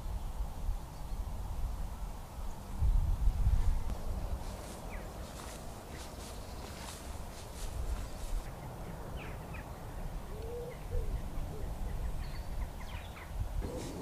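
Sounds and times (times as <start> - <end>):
small birds chirping: 0.0 - 14.0
pigeon cooing: 10.4 - 11.7, 13.6 - 14.0.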